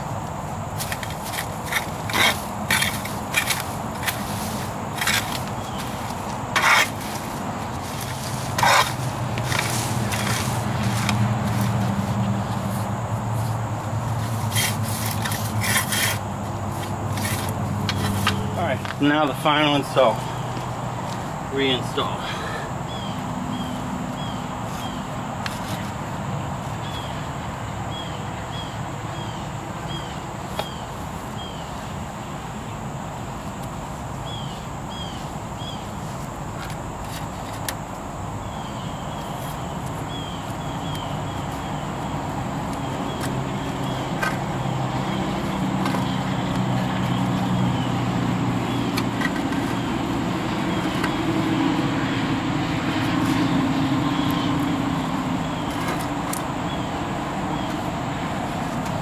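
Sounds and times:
low vehicle engine hum: 0:00.0 - 0:59.0
small bird chirping: 0:38.4 - 0:42.1.

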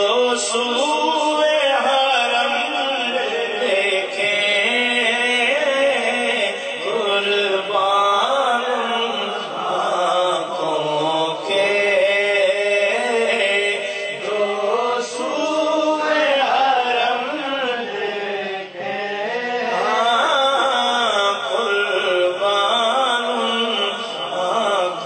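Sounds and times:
man singing unaccompanied: 0:00.0 - 0:25.0.

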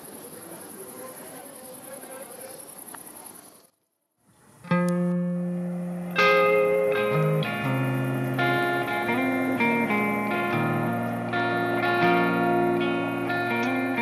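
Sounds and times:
insect trill: 0:00.0 - 0:03.9, 0:04.5 - 0:14.0
soft outdoor noise: 0:00.0 - 0:14.0
plucked guitar music: 0:04.6 - 0:14.0.

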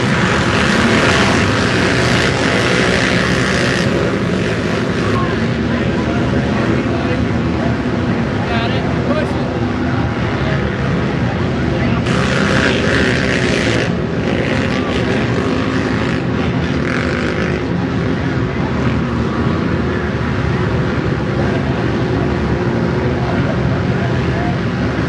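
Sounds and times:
atv engines revving: 0:00.0 - 0:25.0.

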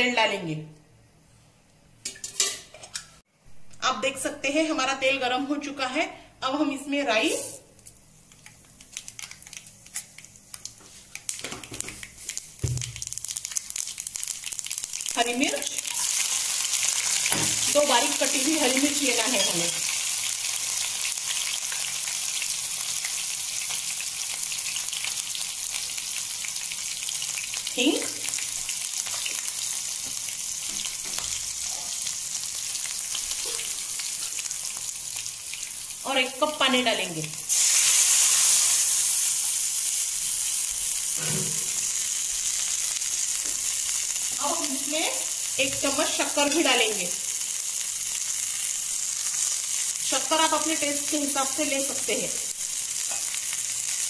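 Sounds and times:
seeds popping in hot oil: 0:07.8 - 0:19.9, 0:21.0 - 0:31.9, 0:40.6 - 0:51.8, 0:52.6 - 0:53.5.

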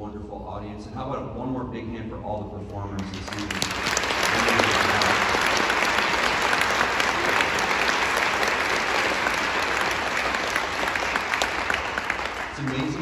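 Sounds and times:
crowd applauding: 0:03.0 - 0:13.0.

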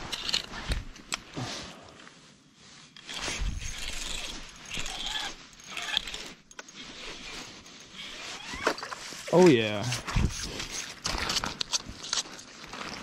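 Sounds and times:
scraping and rustling of gear: 0:00.0 - 0:13.0
fishing reel cranking: 0:03.0 - 0:09.0.

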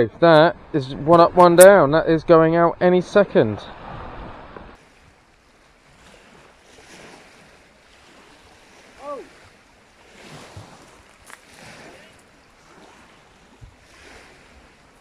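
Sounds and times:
small waves on shingle: 0:03.7 - 0:15.0.

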